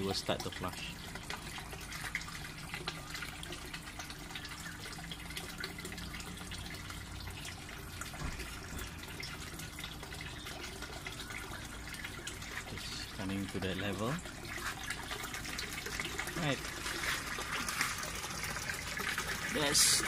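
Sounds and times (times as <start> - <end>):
water trickling and splashing: 0.0 - 20.0.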